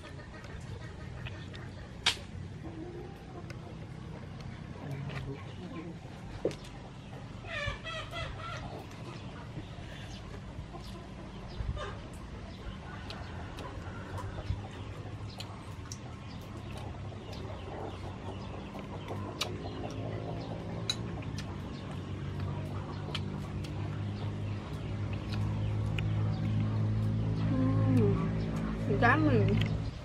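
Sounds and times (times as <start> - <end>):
chickens clucking: 0.0 - 30.0
steady low hum: 0.0 - 30.0.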